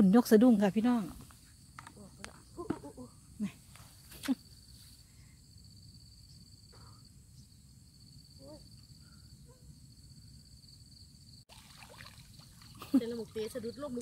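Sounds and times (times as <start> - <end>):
insects trilling: 0.0 - 14.0.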